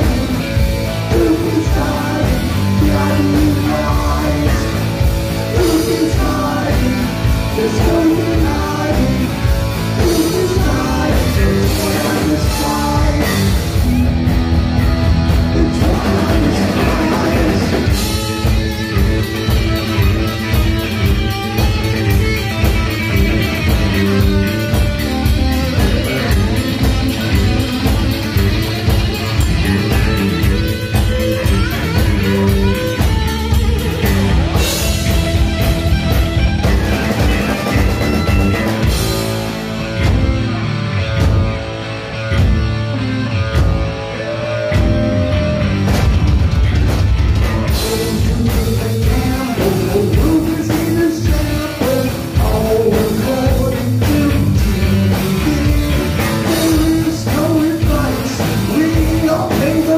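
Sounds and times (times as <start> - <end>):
person singing: 0.0 - 13.9, 15.3 - 18.2, 47.7 - 59.9
distorted electric guitar: 0.0 - 59.9
drums: 0.0 - 59.9.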